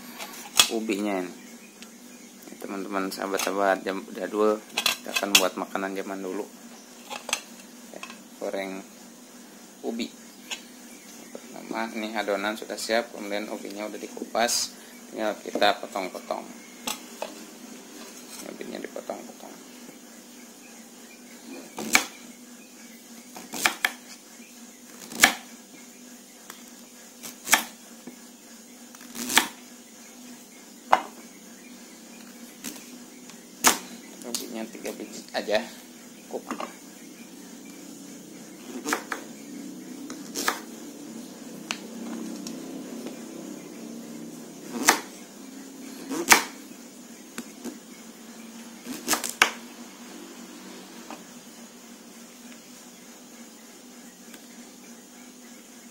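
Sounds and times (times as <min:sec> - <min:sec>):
knife chopping on wooden board: 0:23.4 - 0:24.0, 0:25.0 - 0:25.5, 0:27.2 - 0:27.8, 0:29.1 - 0:29.6, 0:38.7 - 0:39.2, 0:40.2 - 0:40.7, 0:44.7 - 0:45.1, 0:46.1 - 0:46.6
knife cutting on wooden board: 0:38.6 - 0:39.2, 0:40.2 - 0:40.7, 0:44.7 - 0:45.1.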